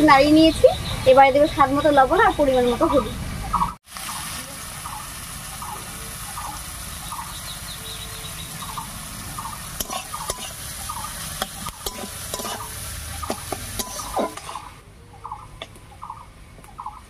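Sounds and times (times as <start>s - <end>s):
vegetables sizzling in oil: 3.8s - 14.8s
metal spatula scraping pan: 9.8s - 10.6s, 11.4s - 14.8s.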